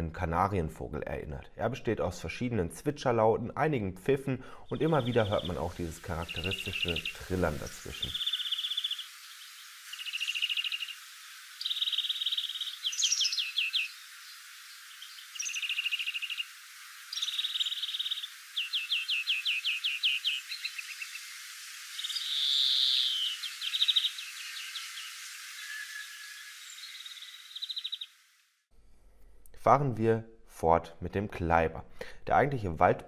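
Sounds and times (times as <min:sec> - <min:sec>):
finch singing trills: 0:04.6 - 0:11.0, 0:11.6 - 0:21.3, 0:22.0 - 0:28.1.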